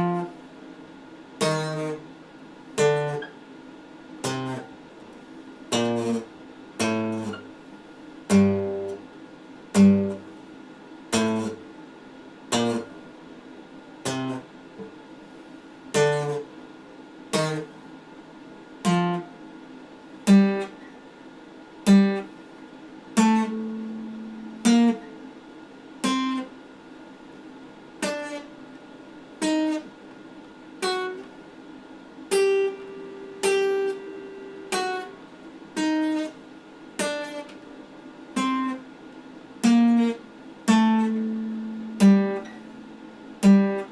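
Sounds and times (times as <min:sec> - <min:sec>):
acoustic guitar chords ringing: 0:00.0 - 0:00.5, 0:01.1 - 0:10.4, 0:11.0 - 0:11.8, 0:12.4 - 0:14.8, 0:15.9 - 0:16.6, 0:17.2 - 0:18.1, 0:18.8 - 0:19.5, 0:20.2 - 0:20.9, 0:21.8 - 0:26.6, 0:28.0 - 0:30.0, 0:30.7 - 0:31.4, 0:32.1 - 0:43.9.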